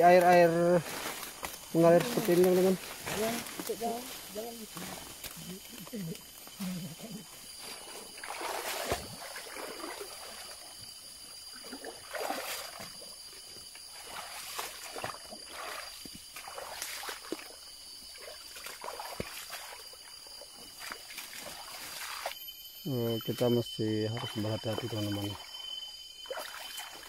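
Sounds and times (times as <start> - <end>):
flowing stream: 0.0 - 22.4, 23.0 - 27.0
footsteps splashing in stream: 0.1 - 5.9, 7.6 - 10.8, 11.6 - 13.2, 13.8 - 20.0, 20.7 - 22.4, 26.3 - 27.0.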